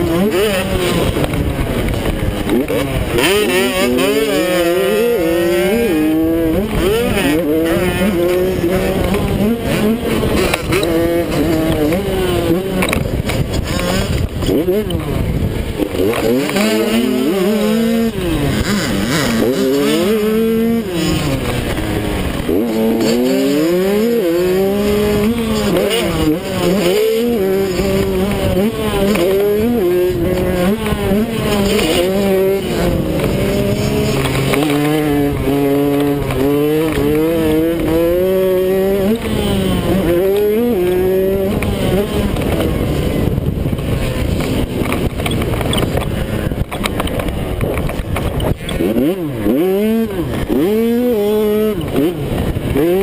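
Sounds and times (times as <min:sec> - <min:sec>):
two-stroke engine racing: 0:00.0 - 0:53.0.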